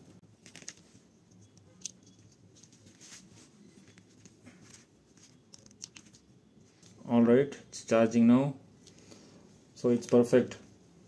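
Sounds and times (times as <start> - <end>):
handling small plastic module: 0.4 - 2.8, 3.8 - 7.0.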